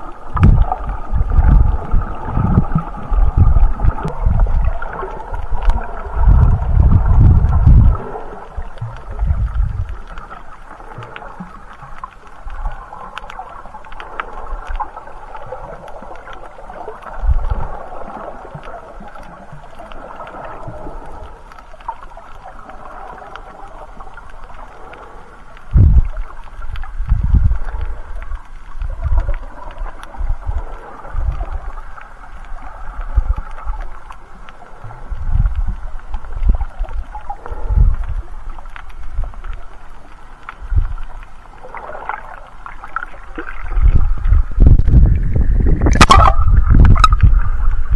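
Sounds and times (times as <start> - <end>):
dull low water thumps: 0.0 - 10.0, 25.7 - 26.2, 26.8 - 27.9, 43.0 - 47.9
faint clicks: 0.0 - 45.0
muffled underwater rushing hiss: 0.0 - 47.9.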